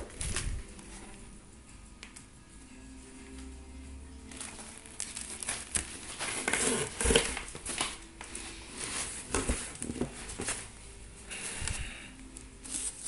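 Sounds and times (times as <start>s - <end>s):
plastic wrapping crinkling: 0.0s - 1.3s, 4.2s - 10.7s
cardboard rustling: 4.3s - 10.8s.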